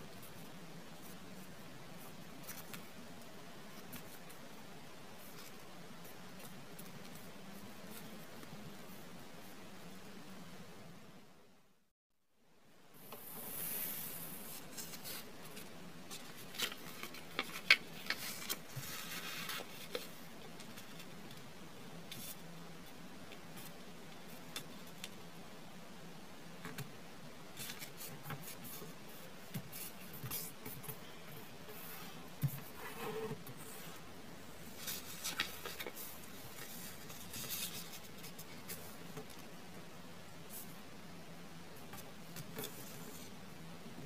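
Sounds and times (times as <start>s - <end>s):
steady hiss: 12.5s - 44.0s
paper being folded and creased: 14.7s - 21.1s, 34.8s - 39.3s.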